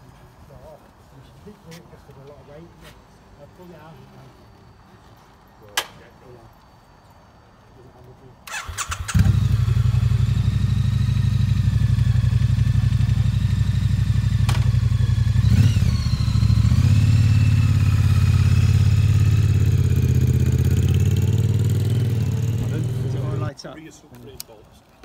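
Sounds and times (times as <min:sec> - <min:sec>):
motorcycle engine idling: 0:08.5 - 0:23.5.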